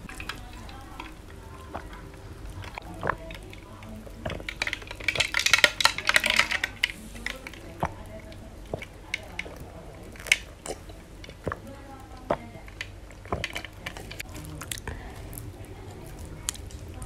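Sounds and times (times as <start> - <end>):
person gulping liquid: 1.2 - 5.7, 6.7 - 15.5.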